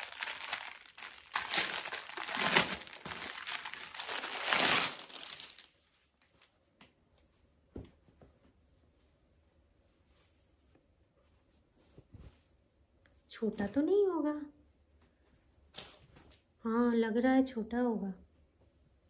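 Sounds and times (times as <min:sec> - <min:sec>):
packaging crinkling and rustling: 0:00.0 - 0:06.5.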